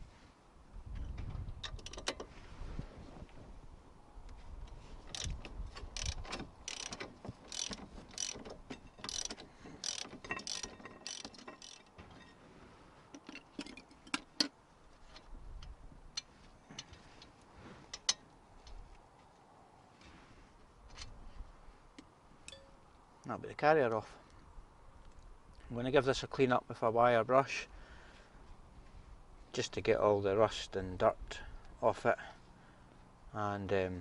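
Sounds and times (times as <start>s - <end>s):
socket ratchet clicking: 5.1s - 11.9s.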